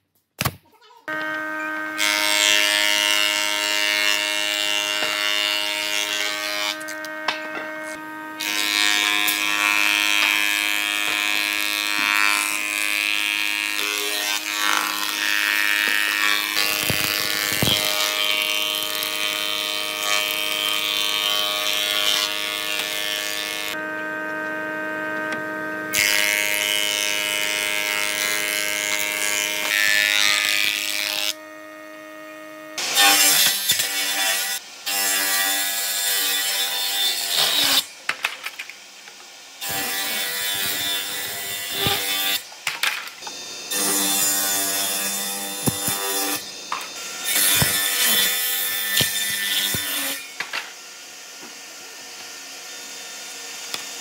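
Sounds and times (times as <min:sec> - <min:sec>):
thickness planer humming: 0:01.1 - 0:34.4, 0:39.6 - 0:54.0
table saw cutting board: 0:01.1 - 0:54.0.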